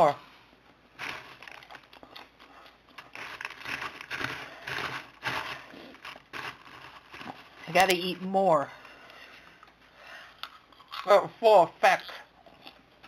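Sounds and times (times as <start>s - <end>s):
popcorn rustling in plastic bowl: 0.9s - 9.0s.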